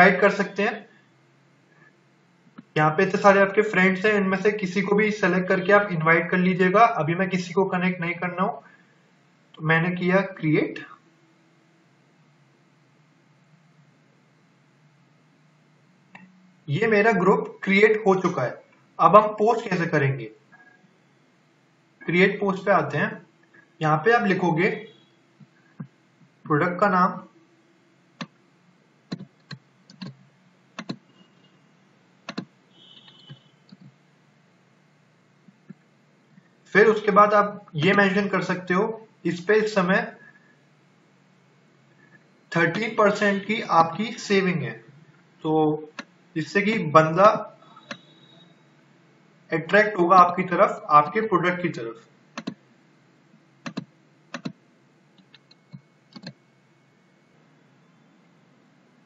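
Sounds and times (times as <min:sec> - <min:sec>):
mouse and keyboard clicks: 0:55.2 - 0:56.4.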